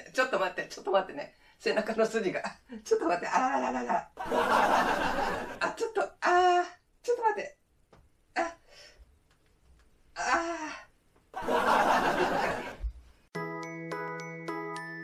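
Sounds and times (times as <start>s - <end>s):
light chiming tune: 13.3s - 15.0s.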